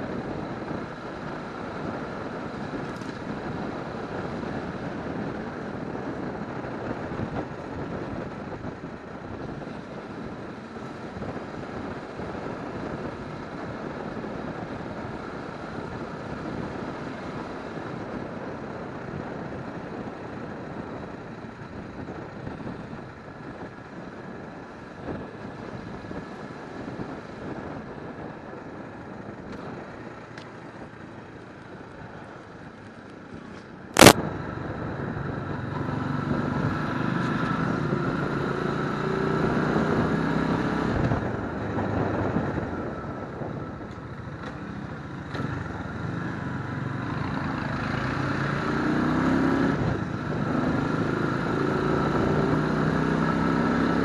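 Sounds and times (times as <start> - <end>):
road noise: 0.0 - 54.0
motorcycle engine: 29.4 - 54.0.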